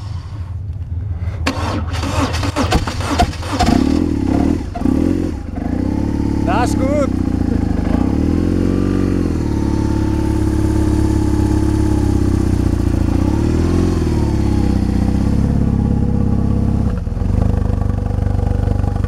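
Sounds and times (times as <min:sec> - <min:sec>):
motorcycle engine idling and revving: 0:00.0 - 0:19.0.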